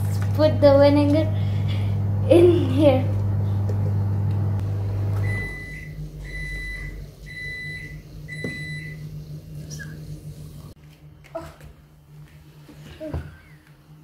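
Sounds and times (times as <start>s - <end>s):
low electric hum: 0.0s - 14.0s
appliance long beeps: 5.1s - 9.2s.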